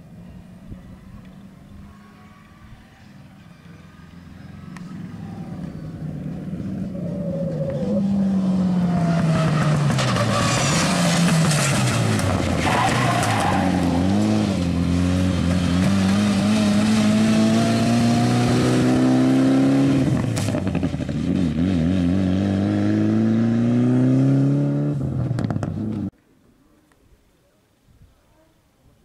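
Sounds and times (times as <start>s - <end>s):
rally car engine at full throttle: 4.4s - 26.1s.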